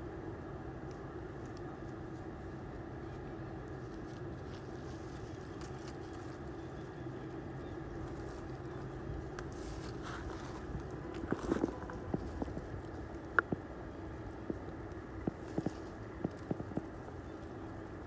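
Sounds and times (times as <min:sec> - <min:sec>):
low mechanical hum: 0:00.0 - 0:18.0
crackles: 0:03.0 - 0:18.0.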